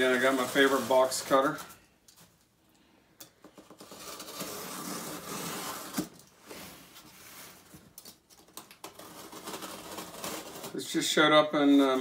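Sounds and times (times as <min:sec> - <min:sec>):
box cutter slicing tape: 0:03.8 - 0:06.2.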